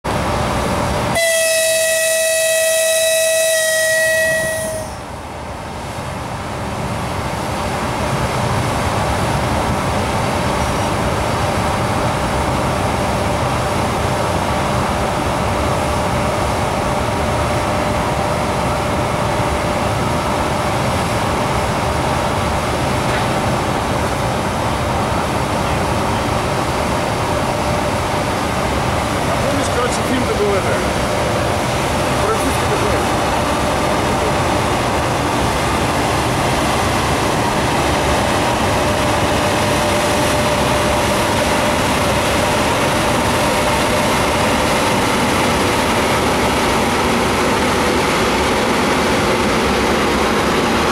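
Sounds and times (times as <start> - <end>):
train running noise: 0.0 - 50.9
locomotive horn: 1.2 - 5.0.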